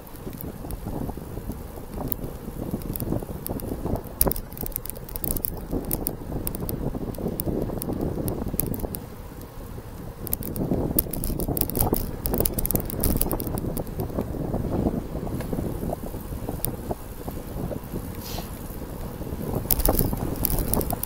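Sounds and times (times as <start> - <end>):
wind buffeting microphone: 0.0 - 21.0
sharp clicks: 1.9 - 9.0, 10.2 - 14.2, 19.7 - 21.0.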